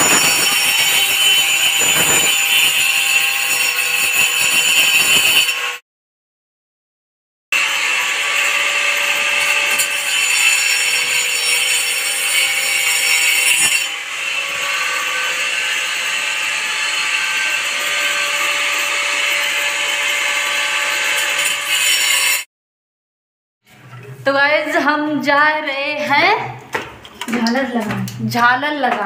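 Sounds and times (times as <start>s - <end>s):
electric drill whining: 0.0s - 5.7s
drill grinding into wall: 0.0s - 5.8s, 7.6s - 22.5s.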